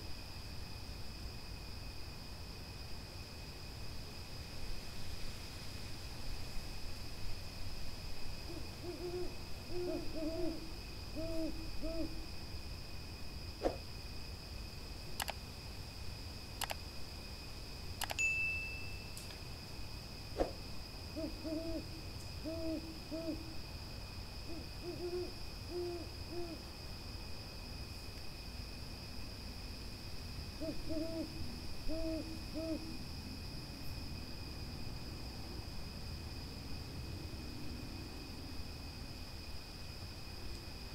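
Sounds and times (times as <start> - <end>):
owl hooting: 8.4 - 12.2, 21.2 - 23.6, 24.5 - 26.6, 30.6 - 32.9
sharp clicks: 15.2 - 15.4, 16.6 - 16.8, 18.0 - 18.2
brief ding: 18.2 - 19.2.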